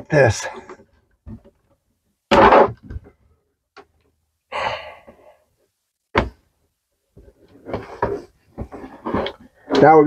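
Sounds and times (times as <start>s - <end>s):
man sighing: 4.5s - 5.3s.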